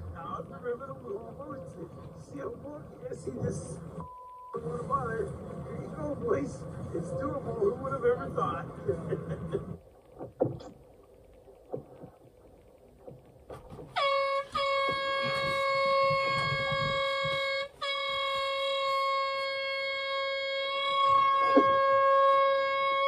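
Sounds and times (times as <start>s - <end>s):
air horn blasts: 13.9s - 23.0s.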